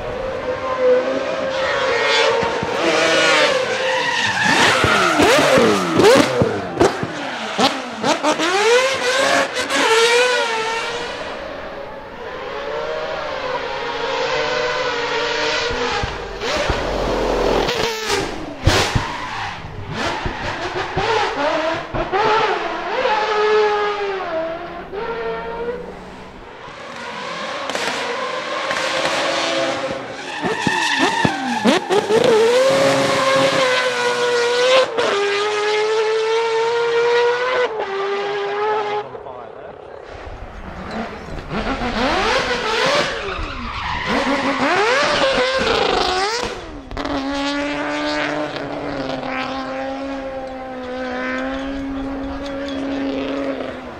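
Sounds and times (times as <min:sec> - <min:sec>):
engine screaming at high revs: 0:00.0 - 0:39.0, 0:40.6 - 0:53.9.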